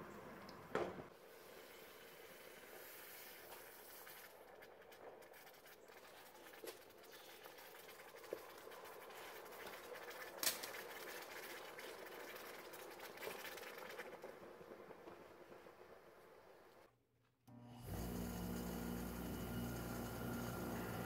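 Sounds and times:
water bubbling and crackling: 3.4s - 14.4s.

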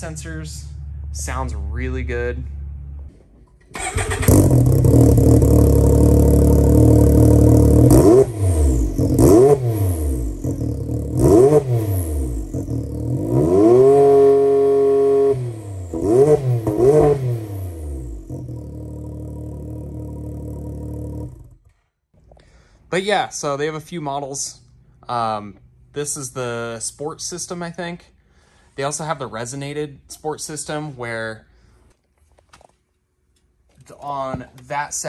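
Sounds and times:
loud engine idling and revving: 3.9s - 21.6s.

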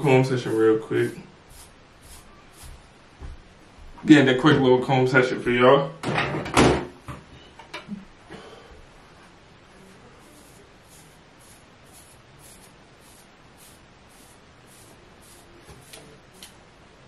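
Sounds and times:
comb scratching through hair: 0.0s - 2.8s, 10.2s - 16.6s.

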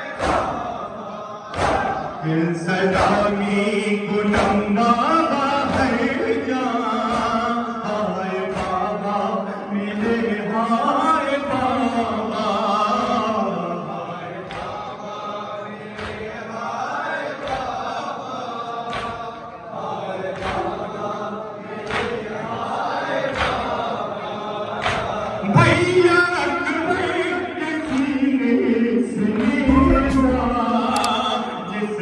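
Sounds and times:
men chanting in unison: 0.0s - 32.0s
chest slaps: 29.7s - 31.1s.

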